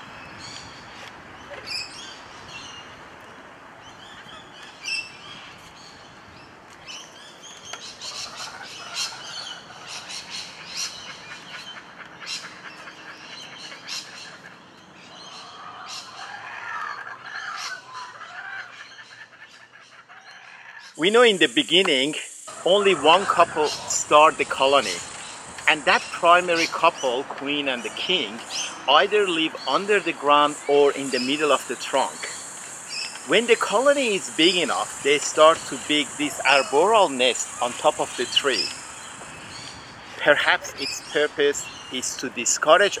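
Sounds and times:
birds chirping and calling: 0.0 - 43.0
low warbling bird calls: 3.8 - 43.0
faint steady hiss: 20.9 - 43.0.

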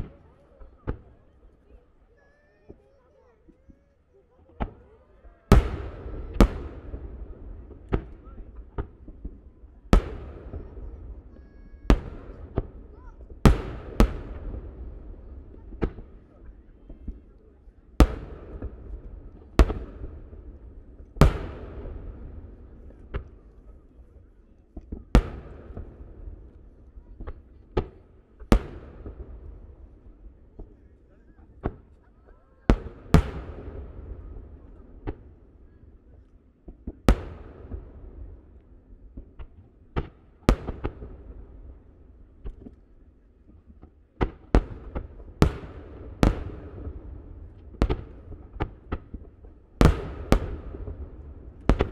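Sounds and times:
firework shells bursting with echo: 43.8 - 51.9.

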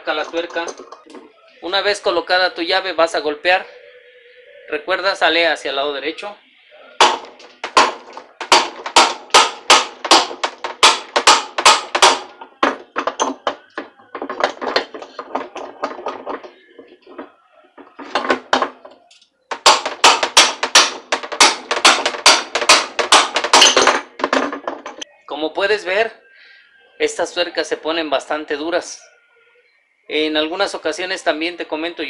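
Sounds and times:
hammer striking metal wrench: 7.0 - 16.5, 19.5 - 25.0.

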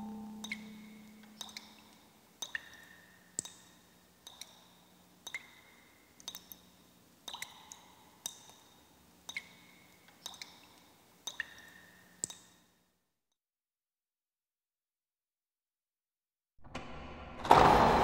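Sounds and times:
low hum: 0.0 - 1.4.

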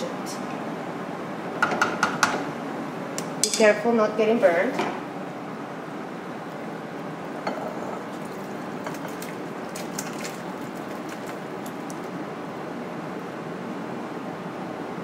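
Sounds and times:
liquid pouring into glass bowl: 7.5 - 12.1.

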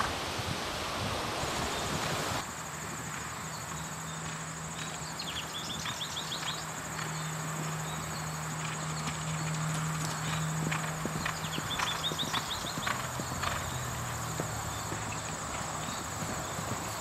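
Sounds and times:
high insect trill: 0.0 - 17.0
hoofbeats on grass: 0.0 - 17.0
chirps: 3.1 - 17.0.

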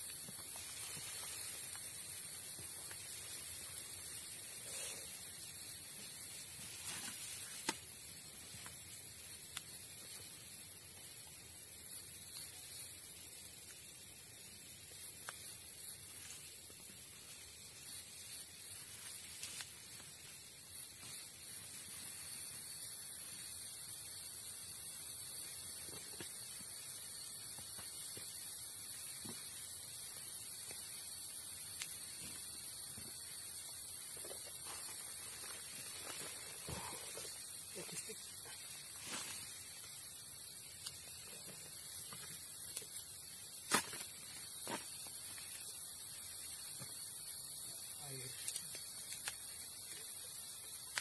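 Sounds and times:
insect chorus drone: 0.0 - 51.0
camping gear rustling and knocking: 5.6 - 7.8, 34.0 - 39.7.

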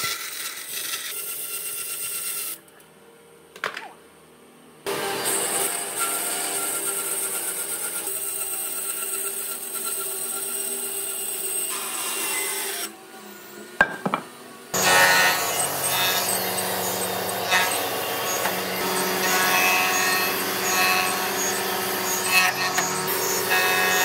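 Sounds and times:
jointer planing wood: 4.9 - 10.4, 14.8 - 24.0
band saw cutting wood: 4.9 - 24.0
sharp knocks: 13.8 - 14.3.

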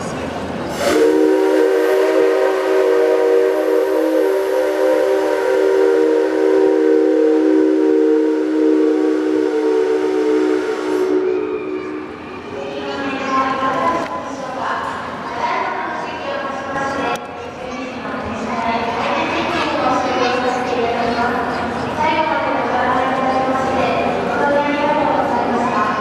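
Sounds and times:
steam locomotive whistle blast: 0.7 - 12.6.

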